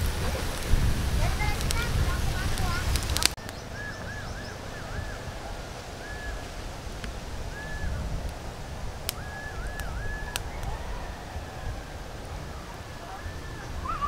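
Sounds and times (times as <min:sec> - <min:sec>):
charcoal fire popping: 0:00.0 - 0:12.4
low outdoor rumble: 0:00.0 - 0:14.0
bird whistled call: 0:03.4 - 0:06.5, 0:07.5 - 0:08.0, 0:09.1 - 0:11.7, 0:13.0 - 0:14.0.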